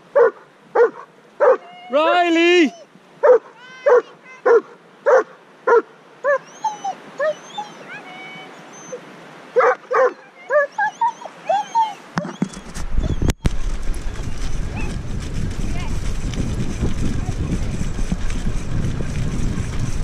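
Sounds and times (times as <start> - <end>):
dog barking: 0.2 - 1.7, 3.2 - 6.4, 9.6 - 11.2
dog whining and yipping: 2.7 - 9.0, 9.6 - 13.5.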